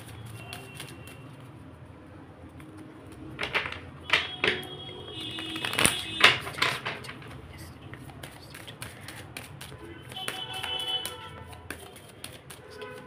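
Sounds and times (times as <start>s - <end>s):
cards being shuffled: 0.0s - 1.6s, 5.2s - 13.0s.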